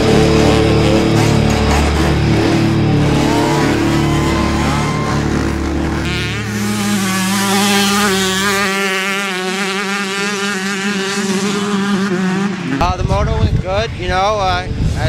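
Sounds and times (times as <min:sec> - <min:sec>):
rock music with heavy bass: 0:00.0 - 0:07.5
dirt bike engine revving: 0:00.0 - 0:13.1.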